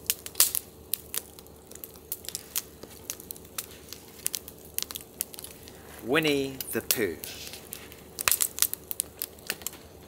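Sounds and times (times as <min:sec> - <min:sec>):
wood fire crackling: 0:00.0 - 0:10.0.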